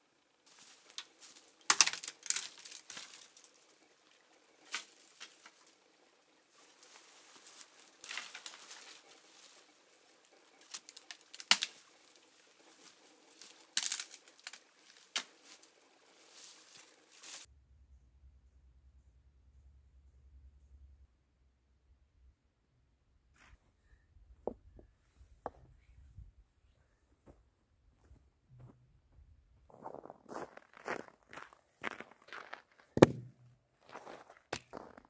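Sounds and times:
dry branches rustling and crackling: 0:00.4 - 0:17.5
dry wood snapping: 0:00.6 - 0:05.9, 0:06.7 - 0:15.8.

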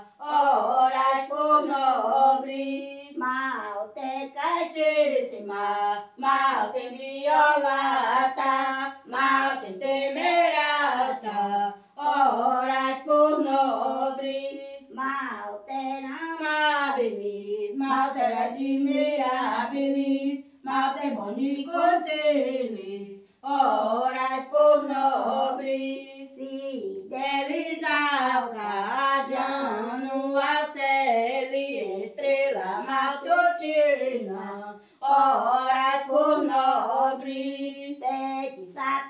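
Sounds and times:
woman singing a hymn: 0:00.0 - 0:38.8.

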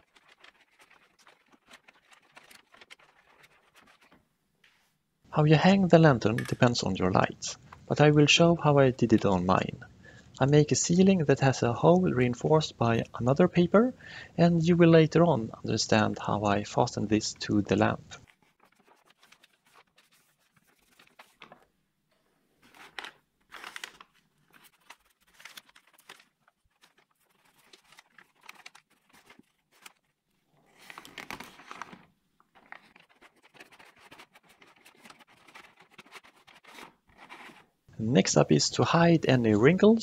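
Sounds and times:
paper rustling and crinkling: 0:00.0 - 0:04.2, 0:17.8 - 0:21.8, 0:22.6 - 0:37.8.

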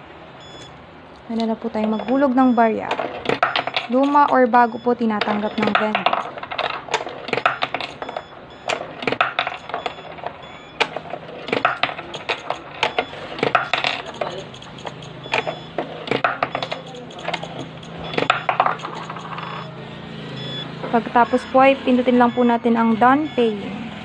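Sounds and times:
sharp metallic clicks and clinks: 0:01.4 - 0:10.1, 0:10.8 - 0:19.7
coins dropping into coin acceptor: 0:01.7 - 0:19.7.

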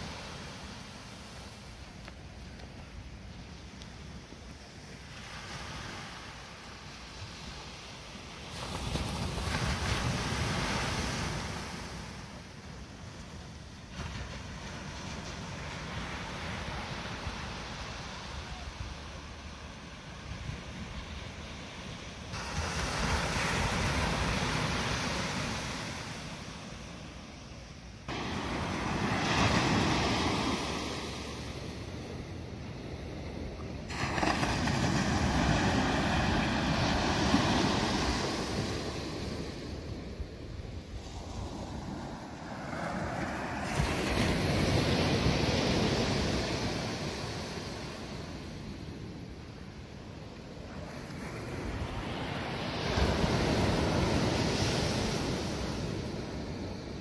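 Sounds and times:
surf breaking on beach: 0:22.2 - 0:26.7, 0:28.1 - 0:49.6.

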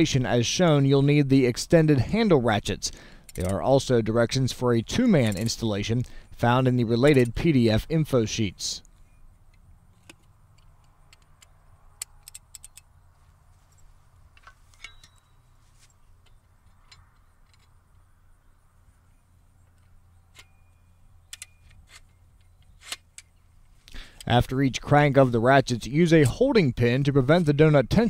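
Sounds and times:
metallic clicks and clinks: 0:03.2 - 0:03.6, 0:05.1 - 0:06.1, 0:08.8 - 0:12.9, 0:13.7 - 0:15.5.

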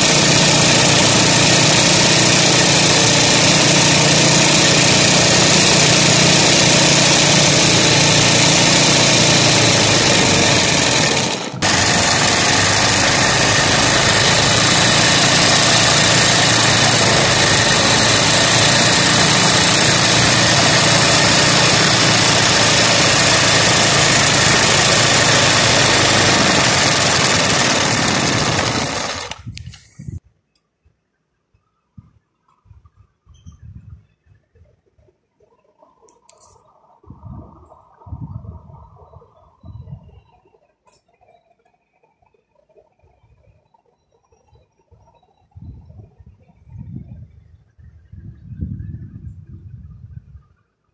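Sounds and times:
sewing machine running: 0:00.0 - 0:29.6.

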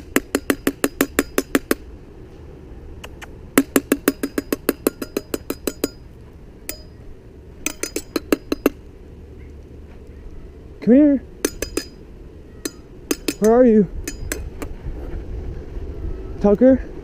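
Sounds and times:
sharp clinking taps: 0:03.6 - 0:06.0, 0:06.7 - 0:07.0, 0:07.6 - 0:08.8, 0:11.4 - 0:12.0, 0:12.6 - 0:14.6.

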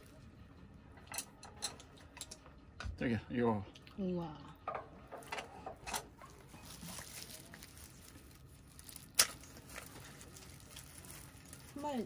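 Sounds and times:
soft handling noises: 0:04.8 - 0:12.0.

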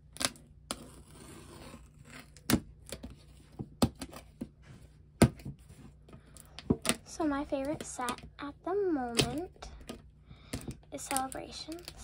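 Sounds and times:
scissors cutting plastic wrap: 0:11.1 - 0:12.0.

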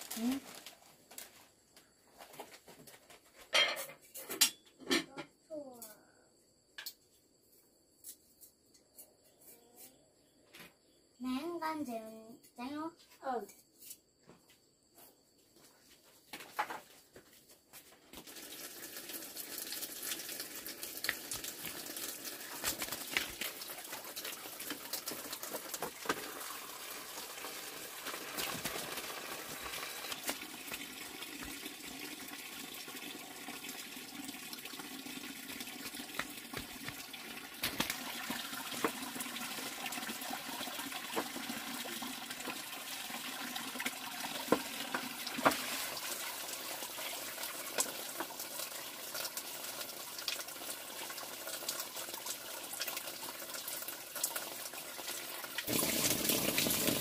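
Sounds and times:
hose water running into basin: 0:00.0 - 0:01.3, 0:18.1 - 0:57.0.

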